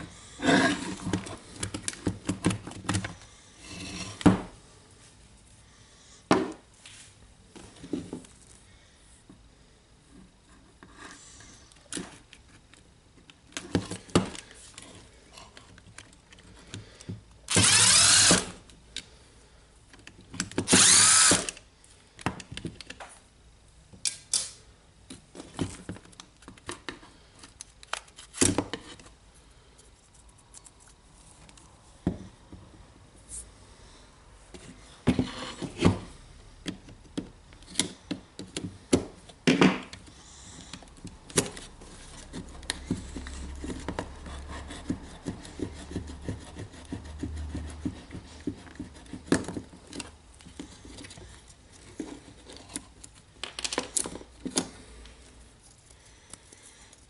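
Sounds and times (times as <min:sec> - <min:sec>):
drill-driver motor whirring: 0:17.5 - 0:18.6, 0:20.7 - 0:21.6
clicks and knocks of plastic parts: 0:49.3 - 0:55.1.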